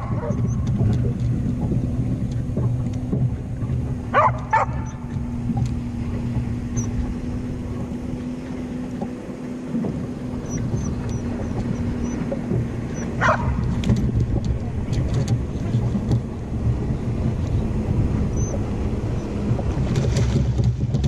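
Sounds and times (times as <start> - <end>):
steady low hum: 0.0 - 21.0
dog barking: 4.1 - 4.8, 13.2 - 13.5.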